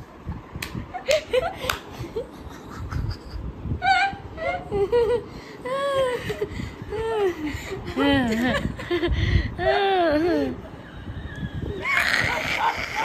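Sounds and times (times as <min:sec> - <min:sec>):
elderly woman laughing: 0:01.0 - 0:10.5, 0:11.8 - 0:13.0.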